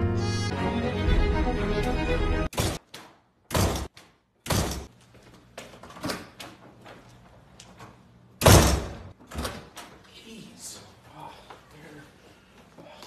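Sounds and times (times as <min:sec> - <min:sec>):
door banging shut: 0:03.5 - 0:04.9, 0:08.4 - 0:09.8.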